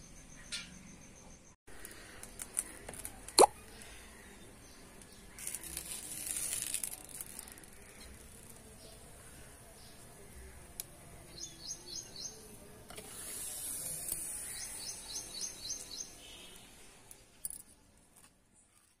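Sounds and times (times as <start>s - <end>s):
small bird chirping: 11.3s - 12.6s, 13.8s - 16.7s
steady hiss: 12.5s - 17.1s.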